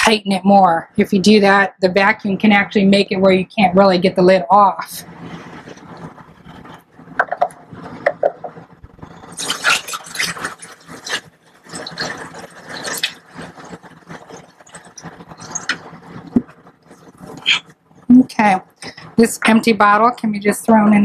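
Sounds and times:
steady low hum: 0.0 - 21.0
liquid glugging and splashing: 5.2 - 17.7.

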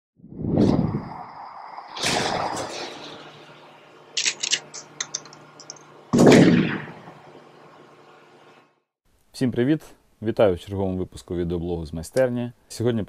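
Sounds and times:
loud boom: 1.9 - 3.4, 6.1 - 7.2
sharp hit: 1.9 - 3.6, 6.1 - 7.2
gunshot-like cracks: 2.0 - 3.2, 6.1 - 7.2.

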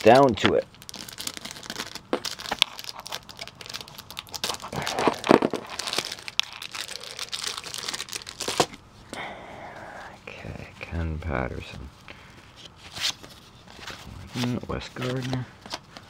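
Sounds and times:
plastic wrapper crinkling: 0.0 - 8.8.

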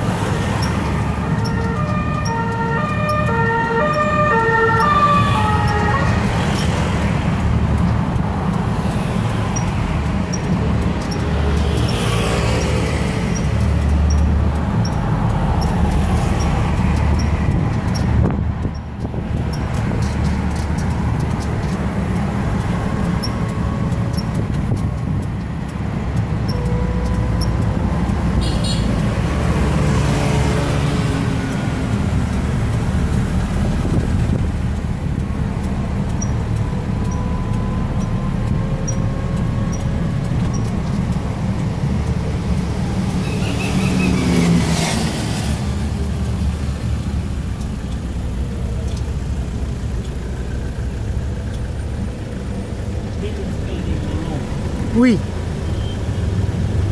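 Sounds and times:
cars passing close by: 0.0 - 56.9
low road rumble: 0.0 - 56.9.

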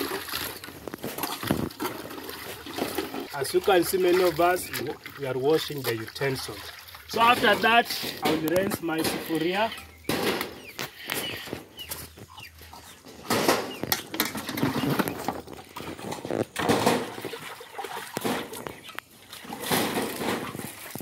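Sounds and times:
water splashing and pouring: 0.0 - 9.8, 14.3 - 21.0
chickens clucking: 7.2 - 20.6.

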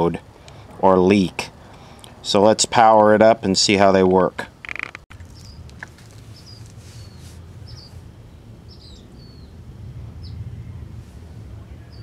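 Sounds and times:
birds chirping: 4.6 - 9.6.

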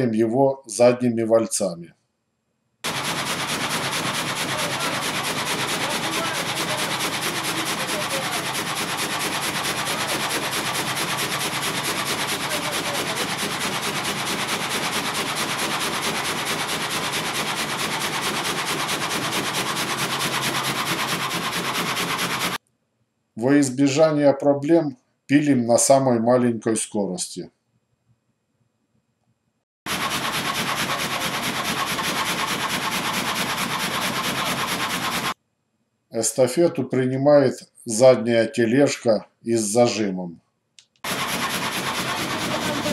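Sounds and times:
gang saw sawing log: 2.9 - 22.6, 29.9 - 35.4, 41.0 - 42.9.

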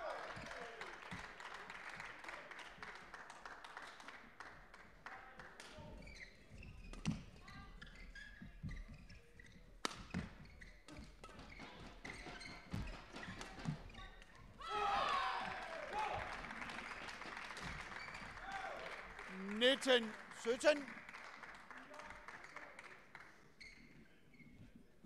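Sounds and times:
shoes squeaking on court floor: 5.8 - 14.6, 16.8 - 18.7, 23.6 - 25.0.

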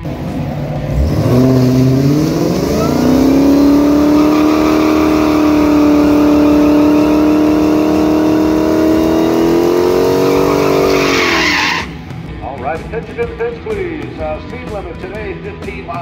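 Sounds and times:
car engine revving high: 0.0 - 12.0
tyres spinning: 0.9 - 12.0.

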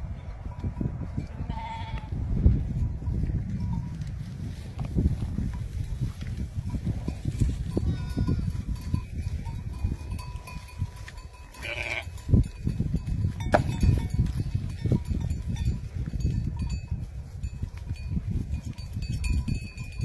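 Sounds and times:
sheep bleating: 1.4 - 2.1, 11.5 - 12.1.

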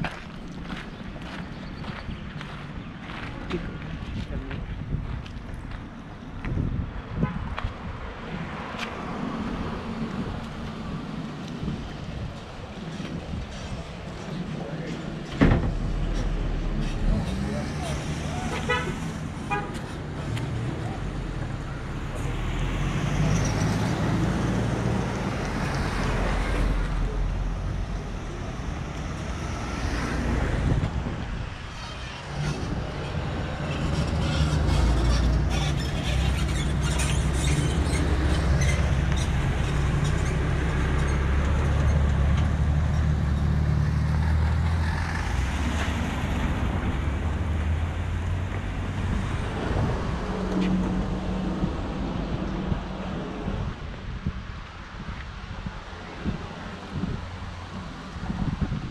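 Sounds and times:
road and wind noise: 0.0 - 58.9.

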